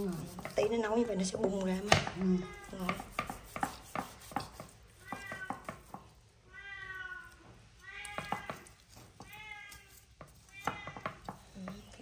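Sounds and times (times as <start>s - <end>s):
knife tapping on cutting board: 2.8s - 6.0s, 10.6s - 11.8s
cat meowing: 5.0s - 11.2s.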